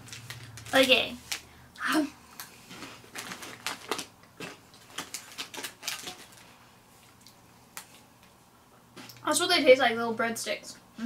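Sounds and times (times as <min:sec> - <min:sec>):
pretzel sticks crunching: 0:00.0 - 0:01.4, 0:02.4 - 0:06.5.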